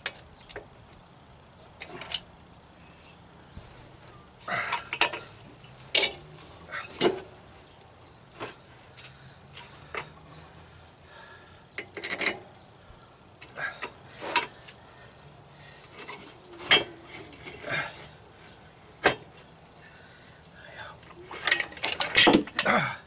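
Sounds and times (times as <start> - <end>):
metal clanks and scraping: 4.5 - 10.2, 11.8 - 12.5, 13.8 - 14.8, 15.8 - 19.5, 21.0 - 22.7.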